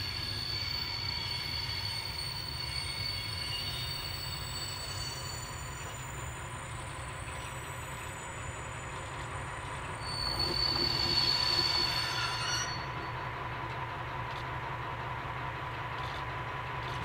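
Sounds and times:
high brake squeal: 0.0s - 13.3s
diesel locomotive engine rumble: 0.0s - 17.0s.

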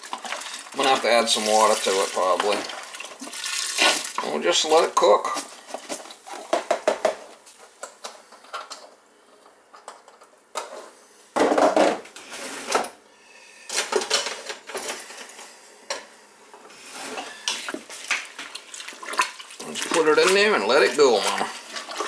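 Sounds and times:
pot and metal utensils clattering: 0.0s - 7.2s, 13.7s - 15.3s, 17.0s - 22.0s.

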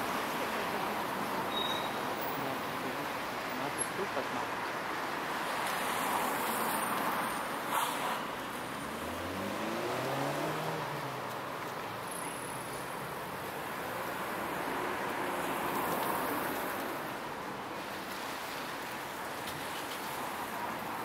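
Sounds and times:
cars passing with road noise: 0.0s - 21.0s
vehicle engine passing by: 8.8s - 11.2s.

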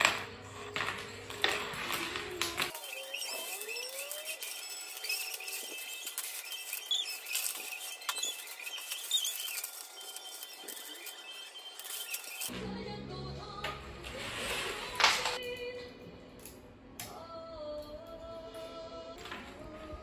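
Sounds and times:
wire and plastic rustling and clicking: 0.0s - 12.5s.

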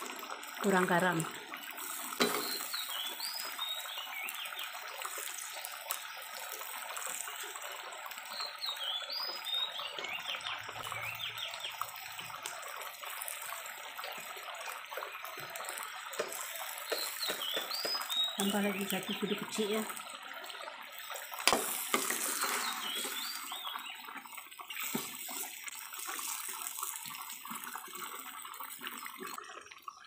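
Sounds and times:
curry bubbling in a pan: 0.0s - 30.0s
bird chirping: 2.2s - 4.7s, 16.7s - 19.4s, 22.1s - 24.0s.

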